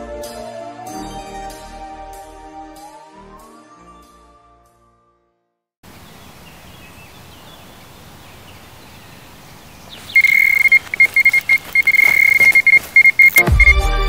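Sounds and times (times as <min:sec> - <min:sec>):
bite alarm beeping: 0:10.1 - 0:13.8.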